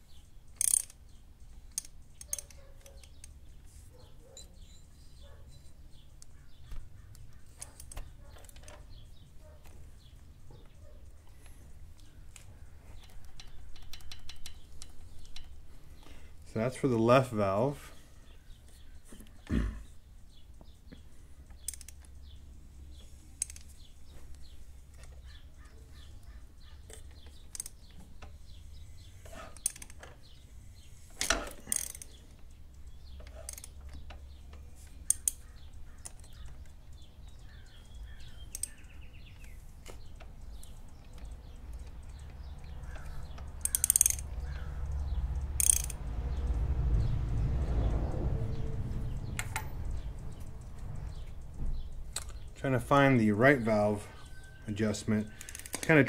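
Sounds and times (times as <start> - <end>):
hand tools clicking on metal: 0.4 - 3.4, 11.4 - 16.1, 21.4 - 30.4, 31.2 - 46.6, 54.7 - 56.0.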